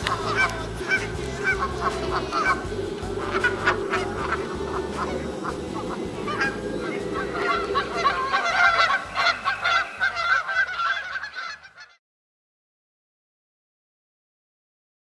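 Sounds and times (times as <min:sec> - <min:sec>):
geese honking: 0:00.0 - 0:12.0.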